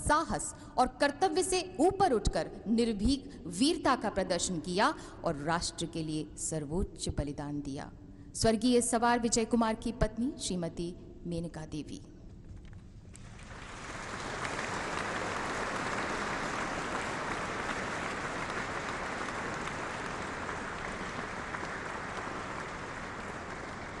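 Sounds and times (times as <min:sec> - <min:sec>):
audience applauding: 0:13.2 - 0:24.0.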